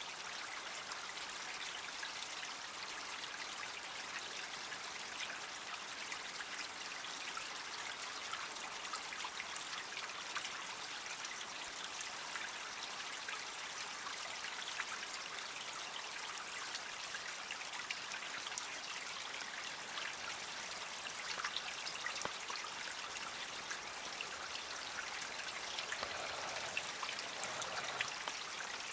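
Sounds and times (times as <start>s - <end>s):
creek water trickling: 0.0s - 28.9s.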